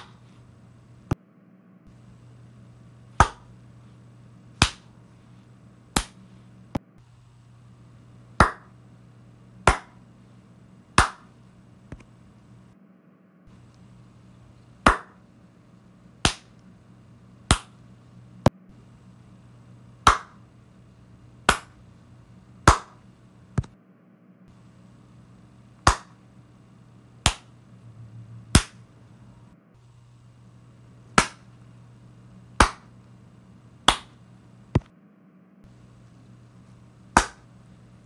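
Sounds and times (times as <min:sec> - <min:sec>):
faint steady hum: 0:00.0 - 0:38.0
hand claps: 0:03.2 - 0:03.5, 0:04.6 - 0:04.9, 0:06.0 - 0:06.2, 0:08.4 - 0:08.7, 0:09.7 - 0:10.0, 0:11.0 - 0:11.3, 0:14.9 - 0:15.2, 0:16.2 - 0:16.5, 0:17.5 - 0:17.8, 0:20.0 - 0:20.4, 0:21.5 - 0:21.8, 0:22.7 - 0:23.0, 0:25.8 - 0:26.2, 0:27.2 - 0:27.5, 0:28.5 - 0:28.8, 0:31.2 - 0:31.5, 0:32.6 - 0:32.9, 0:33.9 - 0:34.2, 0:37.2 - 0:37.5.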